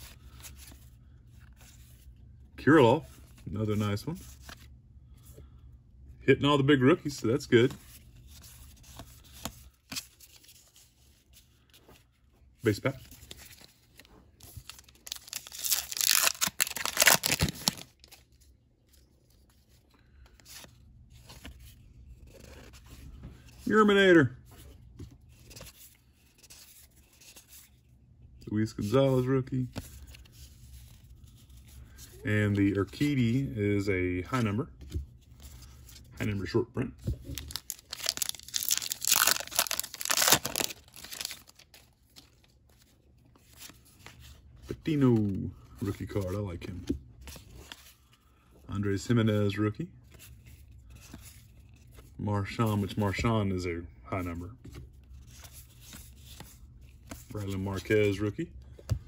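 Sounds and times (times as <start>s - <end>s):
cards rustling and clicking: 7.3s - 23.8s, 24.5s - 27.9s, 28.6s - 33.4s, 34.4s - 48.4s, 50.0s - 52.2s, 54.2s - 59.0s
wrapper tearing open: 14.7s - 18.1s, 37.4s - 41.7s.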